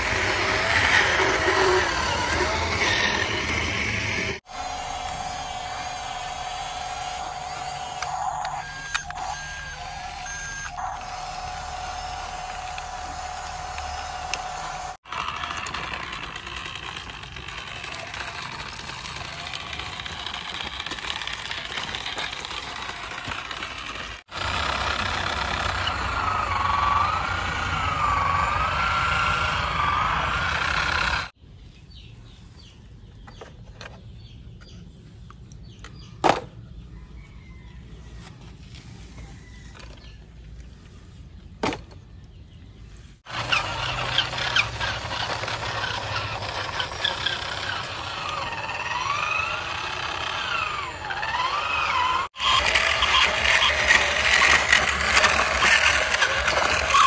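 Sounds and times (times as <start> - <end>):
toy truck motor whining: 0.0 - 31.4, 43.2 - 57.0.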